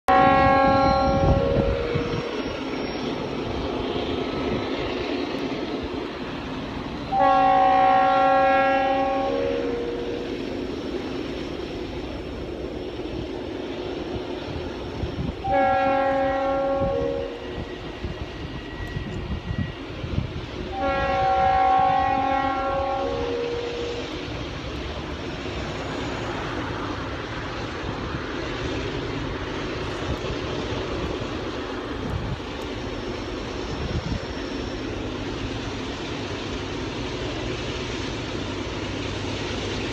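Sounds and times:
low rumble of train: 0:00.0 - 0:39.9
train air horn blasts: 0:00.1 - 0:02.4, 0:07.1 - 0:10.4, 0:15.4 - 0:17.8, 0:20.7 - 0:24.1.

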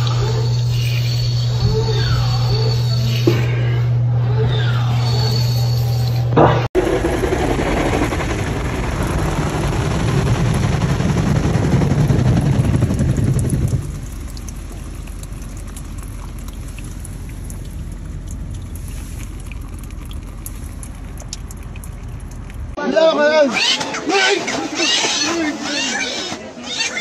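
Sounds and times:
rushing water with low rumble: 0:06.8 - 0:22.8
water pouring and dripping: 0:12.0 - 0:22.8.

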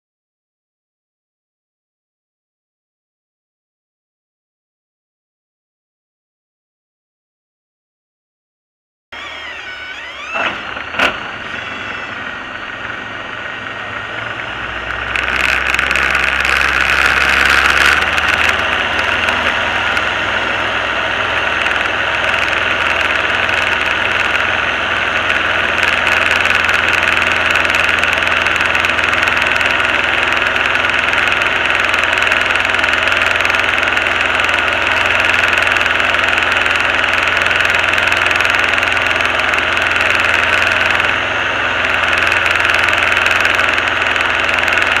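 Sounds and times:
airplane engine and propeller: 0:09.1 - 0:45.0.

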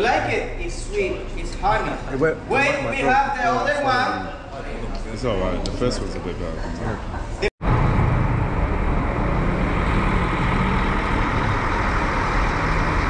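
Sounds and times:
vehicle running: 0:07.6 - 0:13.0.

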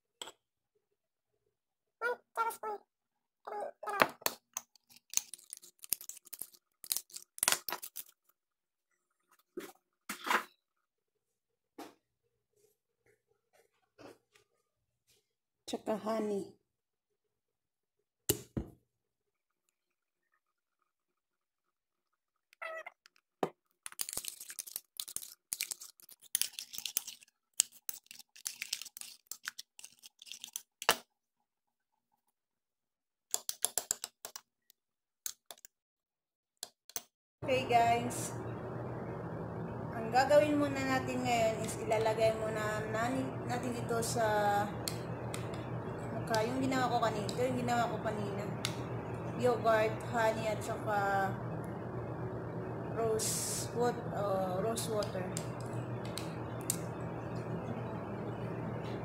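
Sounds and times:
jar handling and rubbing: 0:23.9 - 0:30.7.

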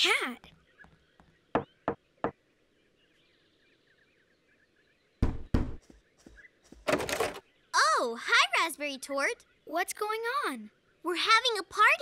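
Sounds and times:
knocking on a wooden door: 0:01.5 - 0:02.4, 0:05.2 - 0:05.8.

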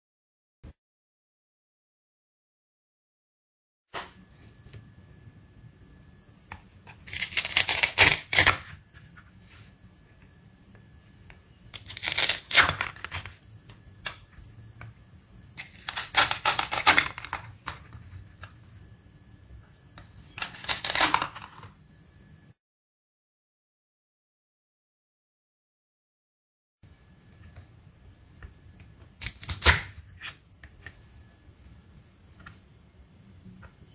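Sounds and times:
velcro ripping apart: 0:07.1 - 0:08.7, 0:11.8 - 0:13.3, 0:15.6 - 0:17.5, 0:20.4 - 0:21.6, 0:29.2 - 0:30.0
plastic pieces clicking: 0:11.7 - 0:13.4, 0:15.6 - 0:17.8, 0:20.4 - 0:21.7, 0:29.2 - 0:29.9.

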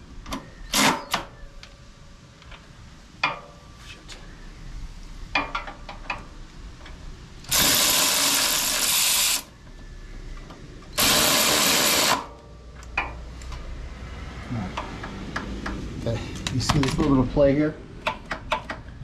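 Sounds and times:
power tool running: 0:07.5 - 0:09.5, 0:11.0 - 0:12.3.

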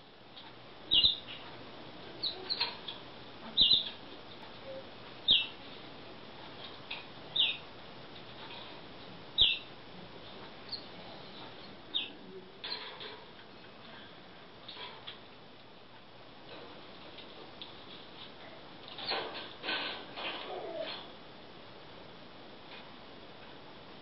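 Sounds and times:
canaries calling: 0:00.9 - 0:01.4, 0:02.1 - 0:04.0, 0:04.7 - 0:05.6, 0:07.3 - 0:07.7, 0:09.3 - 0:09.7, 0:10.7 - 0:10.9, 0:11.8 - 0:13.0.

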